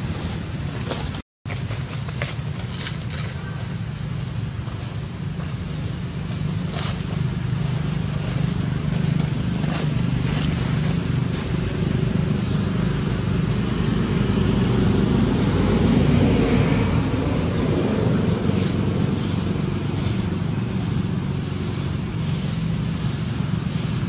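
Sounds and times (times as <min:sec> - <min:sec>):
low motor rumble: 0:00.0 - 0:24.0.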